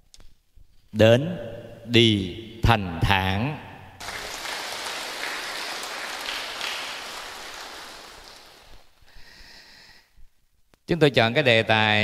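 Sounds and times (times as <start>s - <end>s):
audience applauding: 4.0s - 8.9s.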